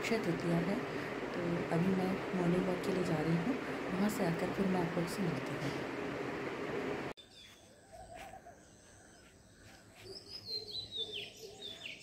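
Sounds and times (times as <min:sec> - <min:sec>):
faint outdoor background noise: 0:00.0 - 0:12.0
birds chirping: 0:07.2 - 0:12.0.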